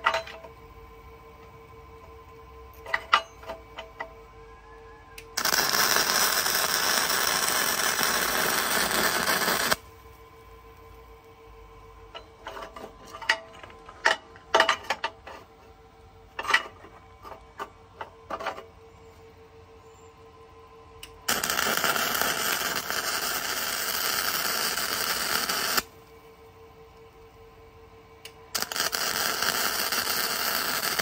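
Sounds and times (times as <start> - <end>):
faint steady hum: 0.0 - 31.0
welding arc crackling sizzle: 5.3 - 11.5, 21.0 - 26.1, 28.3 - 31.0.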